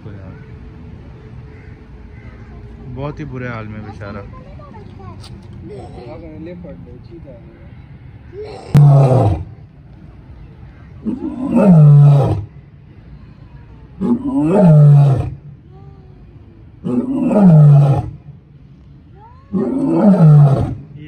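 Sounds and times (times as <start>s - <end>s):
lion roaring: 8.4s - 9.6s, 11.0s - 12.5s, 14.0s - 15.4s, 16.8s - 18.2s, 19.5s - 20.9s.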